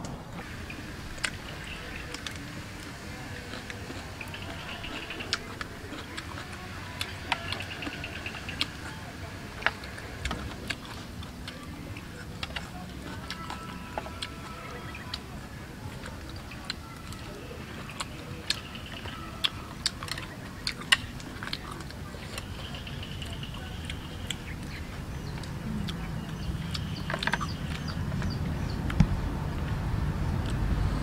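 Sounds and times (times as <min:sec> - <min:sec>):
chewing: 0:00.4 - 0:30.6
low rumble: 0:23.9 - 0:31.0.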